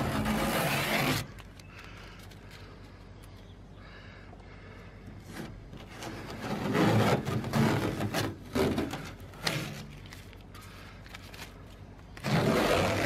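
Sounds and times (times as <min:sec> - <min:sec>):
masking tape ripping off metal: 0:00.0 - 0:01.6, 0:05.8 - 0:10.5, 0:11.1 - 0:13.0.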